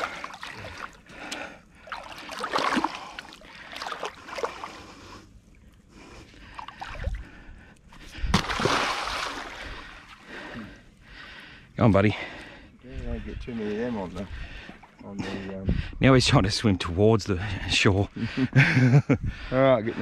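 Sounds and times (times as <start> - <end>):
shallow water splashing: 0.0 - 7.5, 8.3 - 10.6.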